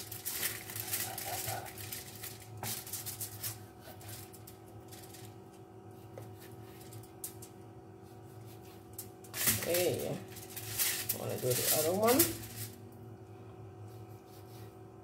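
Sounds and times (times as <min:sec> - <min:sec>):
foil crinkling: 0:00.0 - 0:05.5, 0:08.9 - 0:12.8
steady low hum: 0:00.0 - 0:15.0
knife scraping fish scales: 0:02.7 - 0:04.4.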